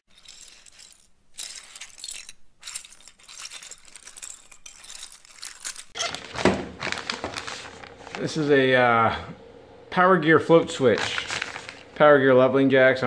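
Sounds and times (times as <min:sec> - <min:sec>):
plastic bricks clattering: 0:00.0 - 0:07.6.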